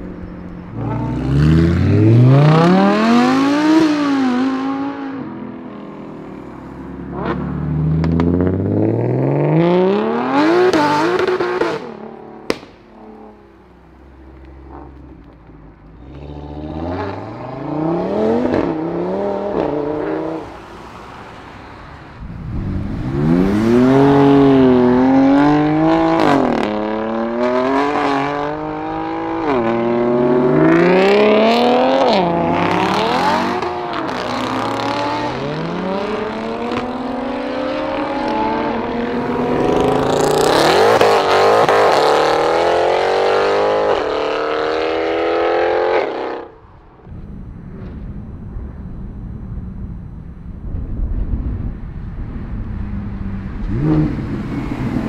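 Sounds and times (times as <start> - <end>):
car engine accelerating through gears: 0.6 - 5.4, 22.2 - 47.6.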